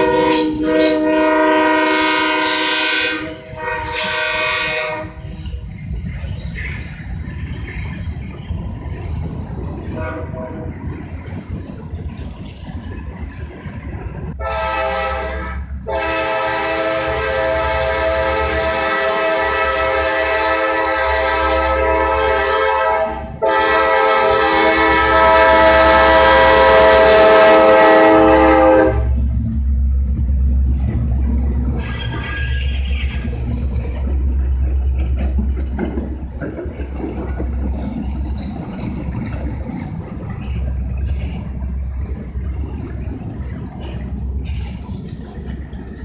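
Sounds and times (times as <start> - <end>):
locomotive air horn: 0.0 - 5.4, 9.9 - 10.8, 14.4 - 29.3
locomotive rumble: 0.0 - 46.0
train cars rattling: 0.0 - 46.0.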